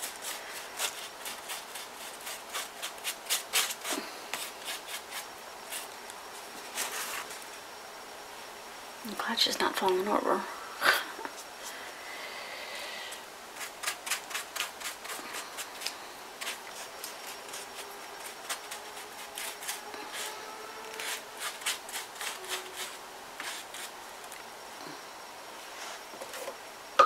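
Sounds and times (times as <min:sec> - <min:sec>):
paper rustling and crackling: 0:06.6 - 0:07.5.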